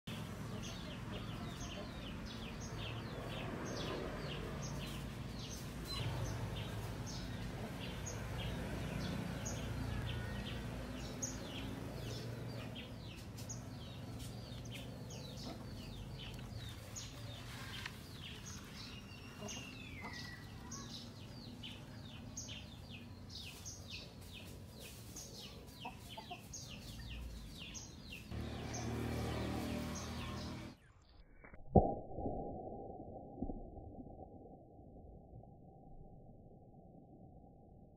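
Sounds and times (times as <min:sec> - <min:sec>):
birds chirping: 0:00.1 - 0:31.2
low steady rumble: 0:31.8 - 0:37.9.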